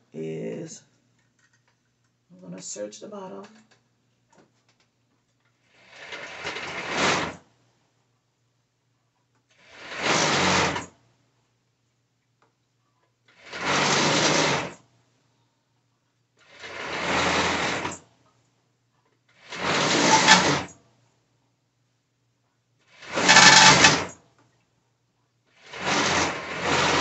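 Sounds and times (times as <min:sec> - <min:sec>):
serger stitching: 0:05.9 - 0:07.4, 0:09.7 - 0:10.8, 0:13.4 - 0:14.8, 0:16.6 - 0:18.0, 0:19.5 - 0:20.7, 0:23.0 - 0:24.1, 0:25.7 - 0:27.0.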